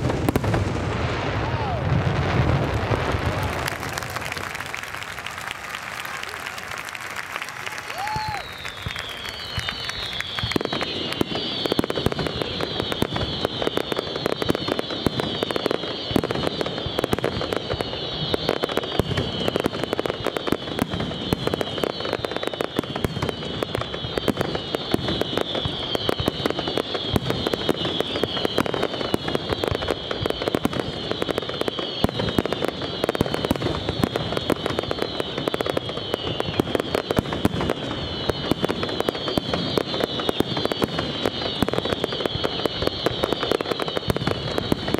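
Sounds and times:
firework bursts and crackling: 0.0s - 44.9s
high falling whistling: 5.0s - 12.1s.

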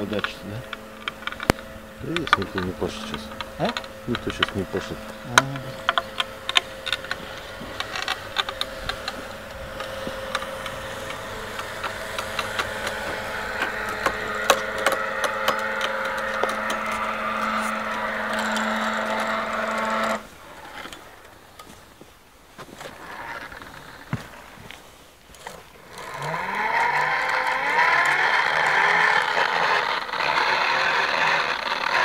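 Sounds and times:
sharp clicks: 0.0s - 21.7s
electric winch motor humming: 0.0s - 32.0s.

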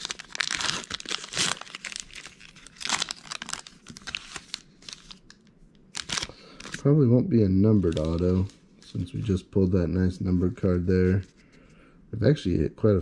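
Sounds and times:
wrapper tearing and crinkling: 0.0s - 6.8s, 7.8s - 8.5s.

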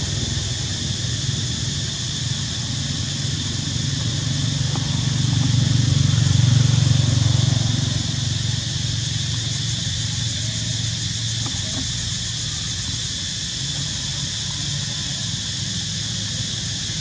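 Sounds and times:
vehicle engine drone passing: 0.0s - 17.0s.

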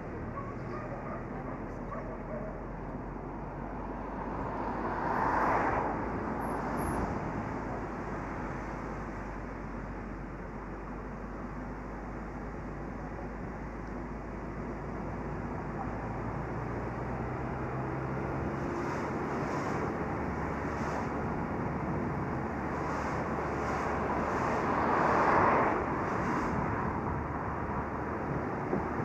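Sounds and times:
tyre and road noise: 0.0s - 29.0s
wind rushing over microphone: 18.3s - 29.0s.

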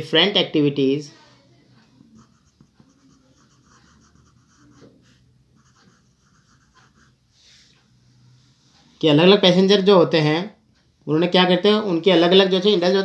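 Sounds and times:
pen scratching on paper: 2.1s - 7.7s.

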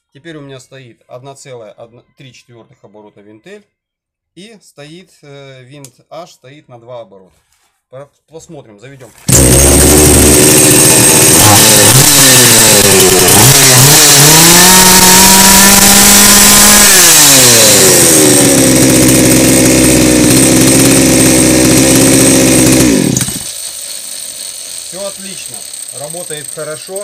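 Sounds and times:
chainsaw engine revving and idling: 9.2s - 27.0s.

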